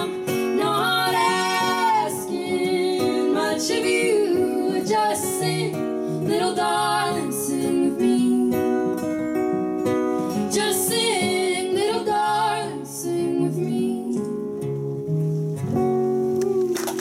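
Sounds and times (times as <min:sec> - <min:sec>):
women singing together: 0:00.0 - 0:09.1, 0:10.3 - 0:14.4
acoustic guitar: 0:00.0 - 0:17.0.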